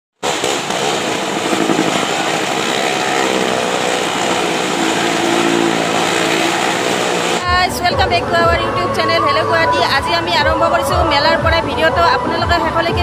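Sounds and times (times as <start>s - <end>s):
small engine at high revs: 0.1s - 7.4s.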